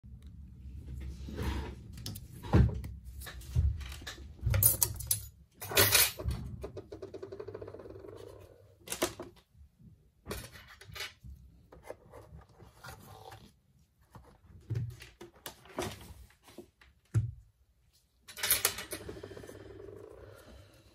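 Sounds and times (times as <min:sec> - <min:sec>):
tools clicking and knocking: 0:03.2 - 0:07.8.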